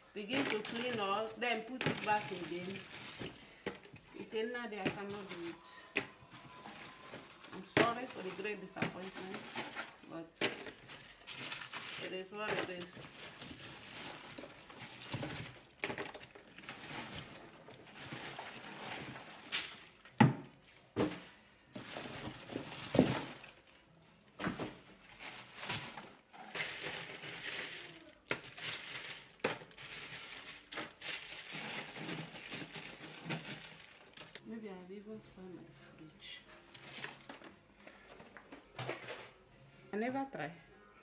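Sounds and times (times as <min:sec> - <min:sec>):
plastic bags crinkling: 0:00.0 - 0:20.2, 0:21.0 - 0:34.4, 0:36.7 - 0:39.3
frozen packs knocking and thudding: 0:00.2 - 0:34.4, 0:36.7 - 0:39.4.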